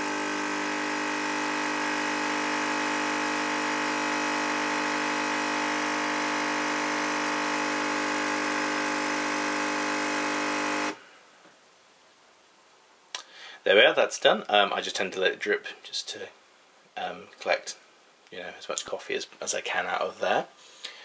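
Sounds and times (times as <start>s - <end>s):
coffee machine pump humming: 0.0s - 11.0s.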